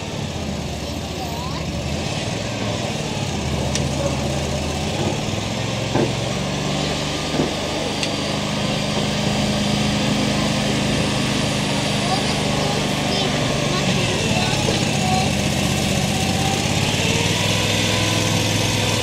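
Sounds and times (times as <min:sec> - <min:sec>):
engine humming: 0:00.0 - 0:19.0
short knocks: 0:05.9 - 0:06.3.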